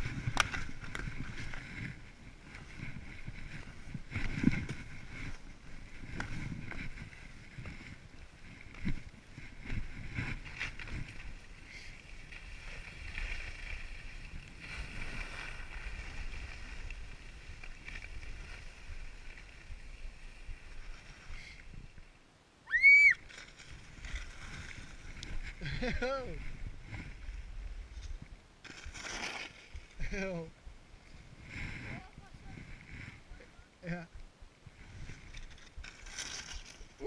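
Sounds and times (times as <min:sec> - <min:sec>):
skis hissing over snow: 0:09.8 - 0:21.9
high-pitched whoop: 0:22.6 - 0:23.2.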